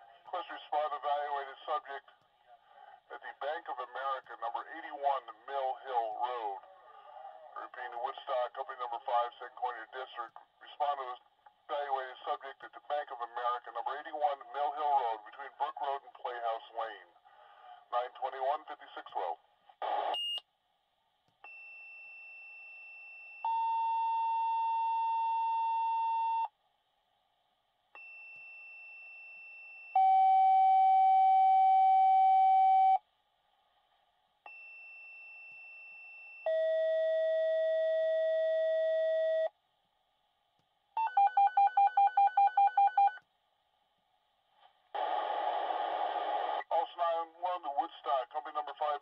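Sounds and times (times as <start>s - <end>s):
dispatcher's voice over radio: 0.3s - 2.1s, 3.1s - 6.6s, 7.6s - 17.1s, 17.9s - 19.4s, 46.7s - 49.0s.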